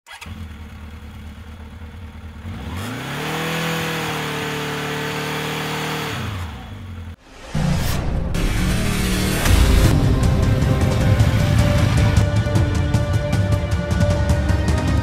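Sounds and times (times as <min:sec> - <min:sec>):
engine revving: 0:02.1 - 0:13.5.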